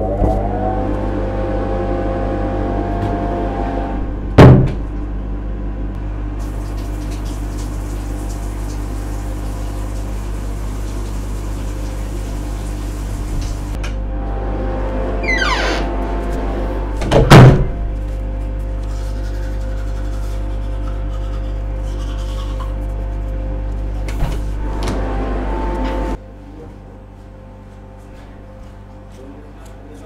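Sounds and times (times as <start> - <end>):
fan humming: 0.0 - 30.0
door banging shut: 4.0 - 5.0, 15.2 - 15.9, 17.0 - 17.9.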